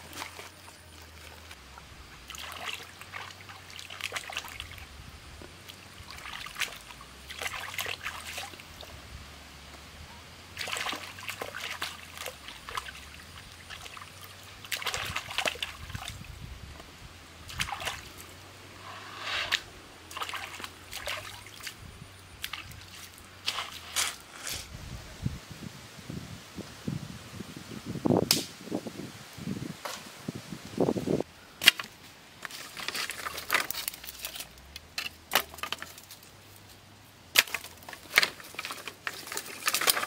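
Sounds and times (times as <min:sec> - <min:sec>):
splashing and sloshing water: 0:00.0 - 0:04.9, 0:05.5 - 0:09.0, 0:10.5 - 0:16.4, 0:17.4 - 0:18.5, 0:20.0 - 0:24.2, 0:37.4 - 0:40.0.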